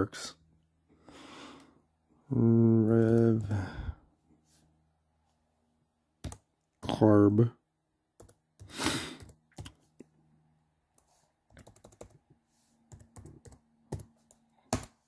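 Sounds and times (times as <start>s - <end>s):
laptop keyboard typing: 6.2s - 6.5s, 8.2s - 9.8s, 11.5s - 12.2s, 12.9s - 15.0s.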